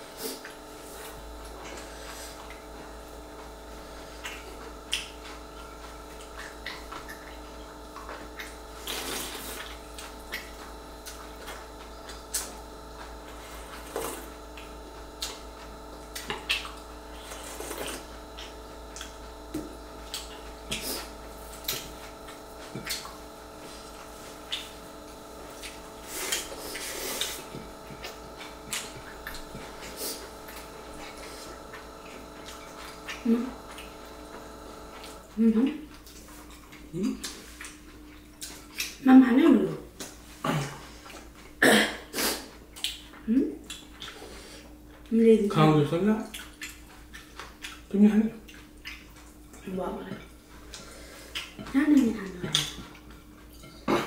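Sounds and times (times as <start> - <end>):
wet chewing and lip smacks: 4.2 - 39.0, 42.7 - 45.1, 46.2 - 51.7.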